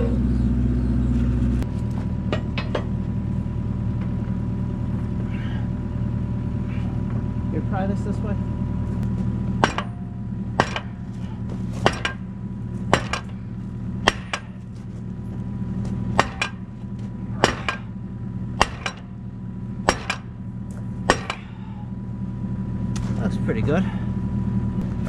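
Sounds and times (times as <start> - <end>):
diesel engine running: 0.0 - 25.0
sledgehammer on steel: 9.6 - 12.3, 12.9 - 13.4, 14.0 - 14.7, 16.1 - 16.7, 17.3 - 18.0, 18.6 - 19.1, 19.8 - 20.4, 21.1 - 21.6.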